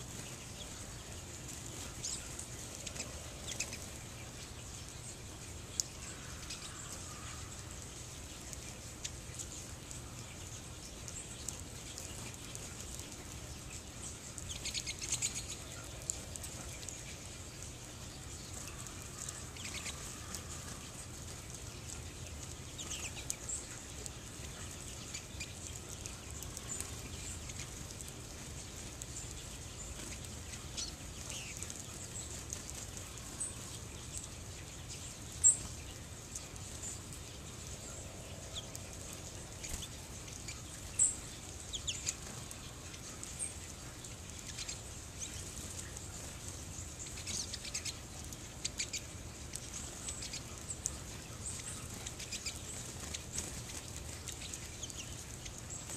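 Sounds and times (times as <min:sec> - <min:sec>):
small birds chirping and twittering: 0:00.0 - 0:55.9
sharp loud bird calls: 0:05.9 - 0:08.2.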